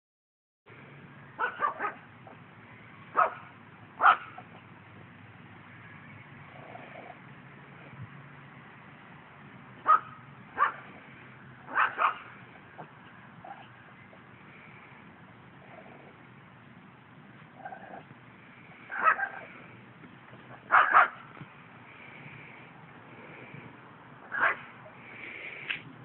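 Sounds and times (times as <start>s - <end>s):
steady low hum: 0.7s - 26.0s
puppy barking: 1.4s - 2.4s, 3.1s - 4.6s, 9.8s - 10.9s, 11.7s - 13.7s, 18.9s - 19.5s, 20.5s - 21.2s, 24.3s - 24.7s.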